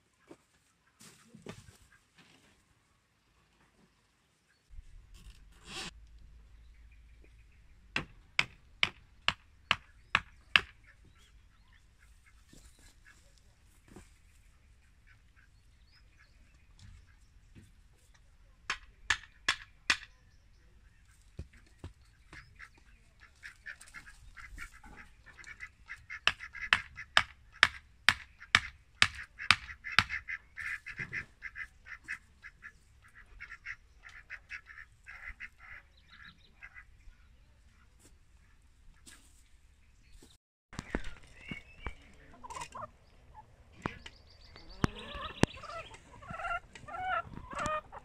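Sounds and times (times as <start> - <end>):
chickens calling: 6.8 - 17.5, 18.7 - 39.3, 40.1 - 48.0
hammer striking wood: 8.0 - 10.8, 18.7 - 20.1, 26.3 - 30.2.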